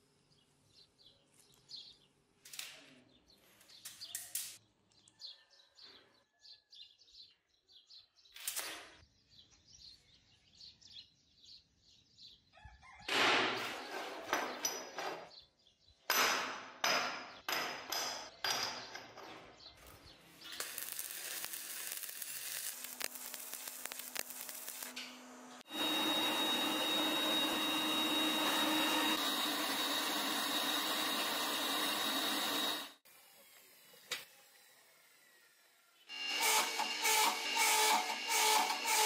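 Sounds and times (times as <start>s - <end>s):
forge burner hissing: 20.4s - 33.0s.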